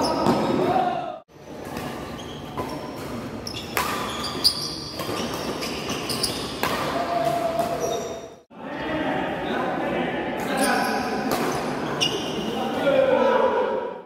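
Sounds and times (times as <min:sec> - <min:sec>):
racket hitting shuttlecock: 0:01.6 - 0:07.9, 0:11.2 - 0:11.7
shoes squeaking on court: 0:01.7 - 0:06.8, 0:07.6 - 0:08.4, 0:10.6 - 0:12.6.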